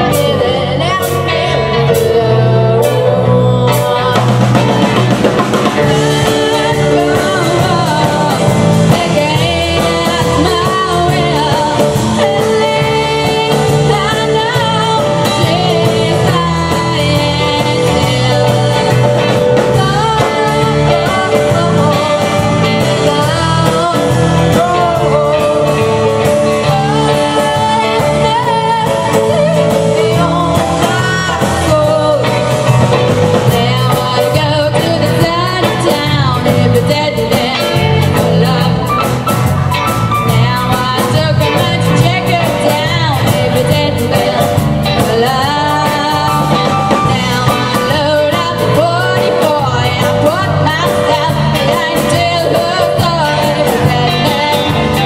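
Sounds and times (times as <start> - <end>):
bass notes: 0.0 - 55.0
drum kit beat: 0.0 - 55.0
electric guitar: 0.0 - 55.0
woman singing: 0.0 - 55.0.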